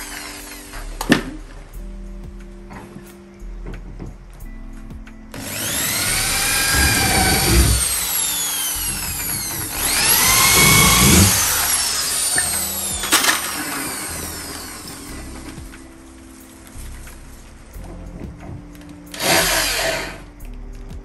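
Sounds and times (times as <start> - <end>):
electric drill whining: 0.0 - 1.1, 5.4 - 15.8, 19.1 - 20.3.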